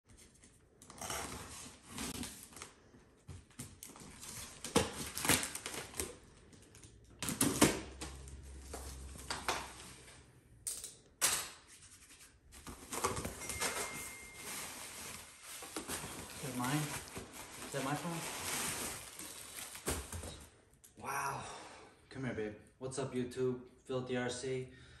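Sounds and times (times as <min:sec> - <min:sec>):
tape ripping: 0:04.2 - 0:06.2.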